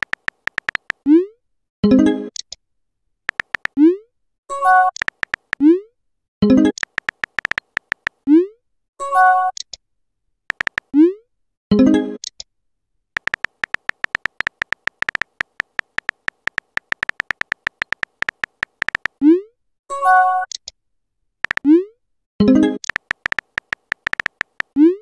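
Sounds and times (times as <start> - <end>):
keyboard taps: 0.0 - 1.0, 3.3 - 3.8, 4.9 - 5.6, 6.8 - 8.2, 10.5 - 10.9, 13.2 - 19.2, 21.4 - 21.6, 22.8 - 24.8.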